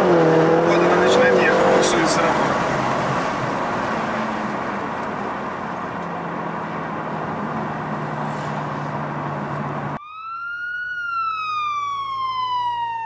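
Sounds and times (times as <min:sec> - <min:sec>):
car engine and road noise: 0:00.0 - 0:13.0
siren wail: 0:10.0 - 0:13.0.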